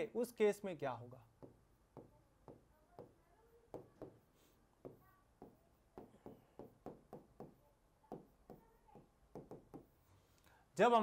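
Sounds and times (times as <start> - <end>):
stylus tapping on screen: 1.3 - 10.0.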